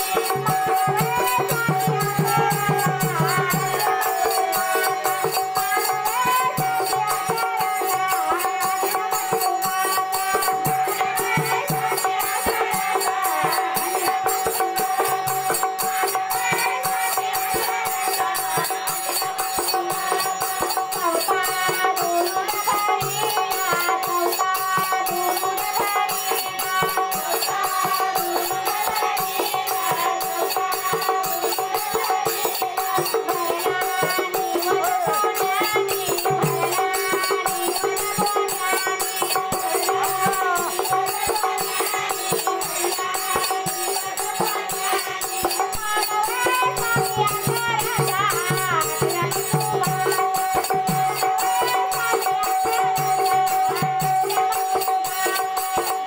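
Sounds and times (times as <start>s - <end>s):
hand drum beat: 0.0s - 56.0s
harmonium: 0.0s - 56.0s
women singing devotional song: 0.0s - 56.0s.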